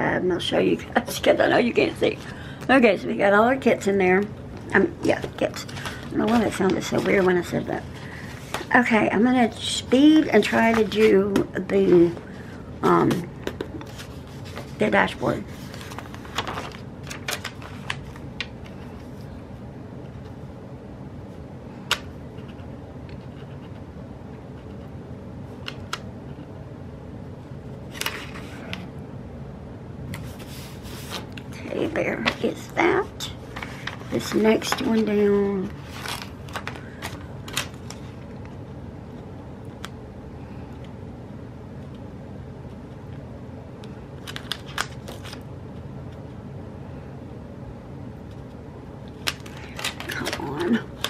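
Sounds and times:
low fan hum: 0:00.0 - 0:51.0
paper and stickers crackling: 0:04.7 - 0:18.9, 0:30.2 - 0:38.5, 0:44.2 - 0:45.4, 0:49.1 - 0:51.0.

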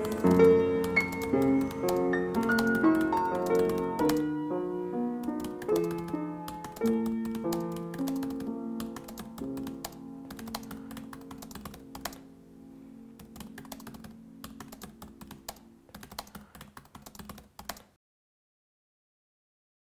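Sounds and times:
keyboard typing clicks: 0:00.0 - 0:04.3, 0:05.2 - 0:12.3, 0:13.2 - 0:18.0
soft background music chords: 0:00.0 - 0:16.0.

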